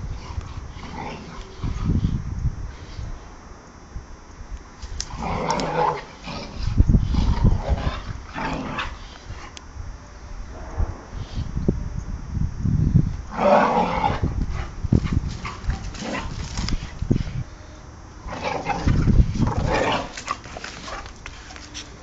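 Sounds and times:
dogs vocalizing while playing: 0:13.8 - 0:17.3, 0:18.3 - 0:22.0
scuffling and knocks: 0:20.1 - 0:22.0.

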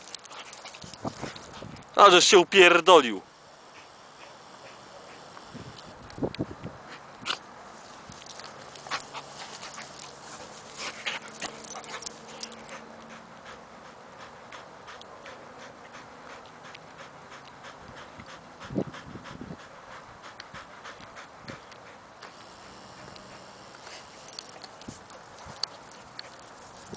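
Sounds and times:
clicks and rustles of wrestling: 0:00.0 - 0:02.0, 0:07.2 - 0:12.9, 0:23.8 - 0:26.9
dog panting: 0:00.0 - 0:02.1, 0:03.7 - 0:05.8, 0:07.8 - 0:26.9.

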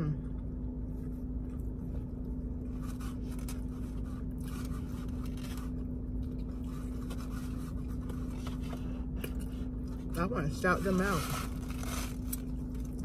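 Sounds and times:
steady low hum: 0:00.0 - 0:13.0
scraping and rustling of food container: 0:02.7 - 0:09.1, 0:10.6 - 0:12.8.

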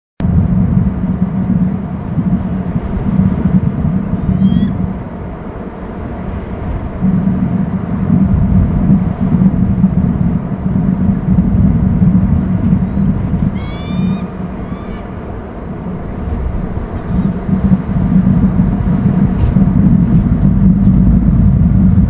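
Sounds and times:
wind buffeting microphone: 0:00.2 - 0:22.0
faint high bird chirps: 0:04.2 - 0:04.8, 0:13.5 - 0:15.1.

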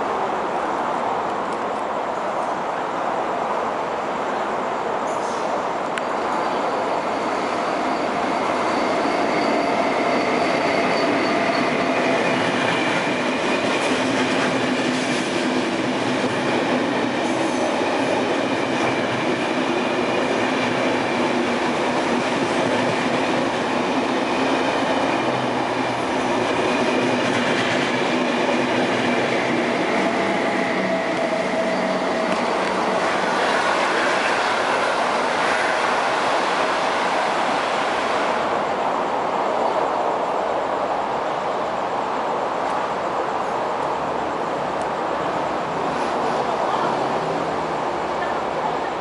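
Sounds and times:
train wheel rush: 0:00.0 - 0:49.0.

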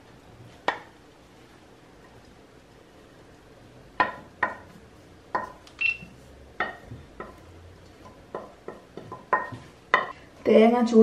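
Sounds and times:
wooden spatula clinking on pan: 0:06.6 - 0:07.4, 0:08.0 - 0:10.1.

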